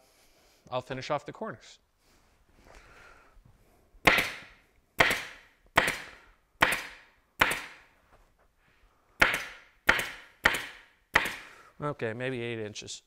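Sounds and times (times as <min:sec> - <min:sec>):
staple gun firing into wood: 0:04.1 - 0:07.8, 0:09.2 - 0:11.4.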